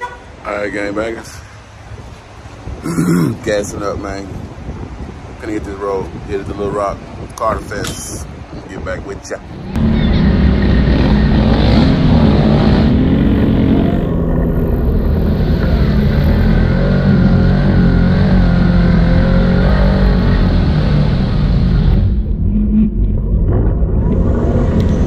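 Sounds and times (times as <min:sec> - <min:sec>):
atv engine revving: 0:09.7 - 0:22.5.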